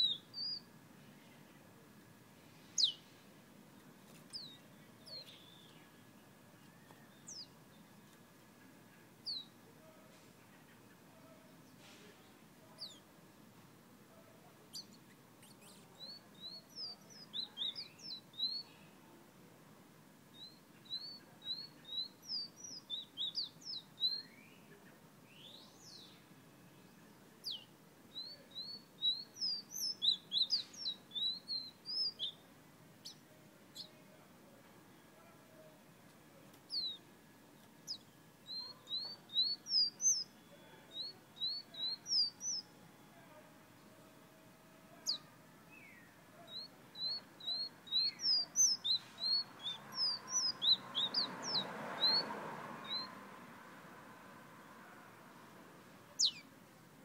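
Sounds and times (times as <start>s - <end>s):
songbird singing: 0.0s - 57.0s.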